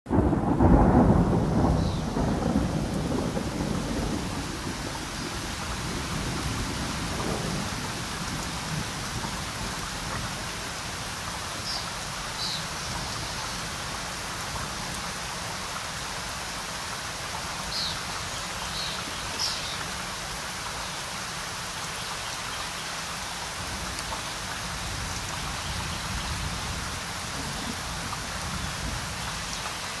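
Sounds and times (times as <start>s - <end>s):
thunder rumbling: 0.1s - 10.6s
steady rain falling: 0.1s - 30.0s.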